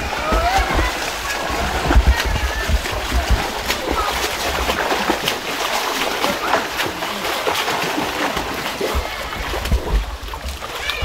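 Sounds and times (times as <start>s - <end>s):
low thumps: 0.0s - 5.4s
swimmer splashing: 0.0s - 11.0s.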